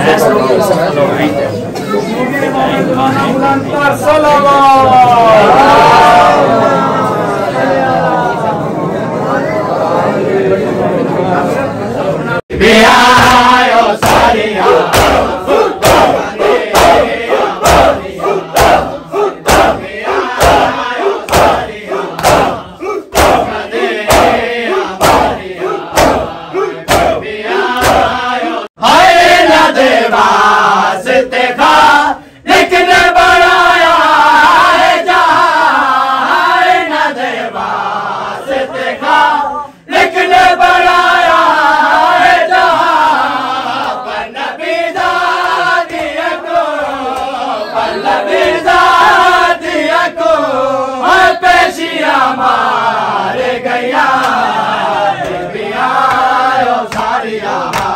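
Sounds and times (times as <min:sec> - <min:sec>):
men chanting: 0:02.5 - 0:08.7, 0:12.5 - 0:57.9
men singing in unison: 0:12.5 - 0:57.9
crowd beating chests: 0:12.6 - 0:28.4.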